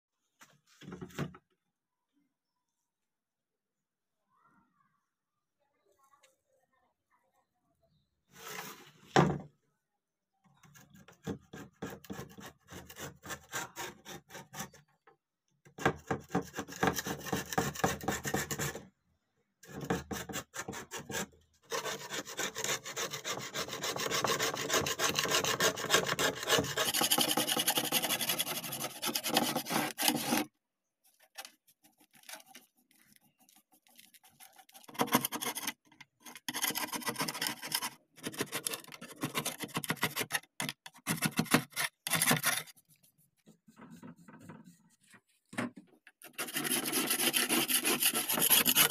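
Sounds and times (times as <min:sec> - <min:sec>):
metal scraper rasping rust: 0:19.7 - 0:30.5, 0:32.1 - 0:42.7, 0:46.2 - 0:48.9.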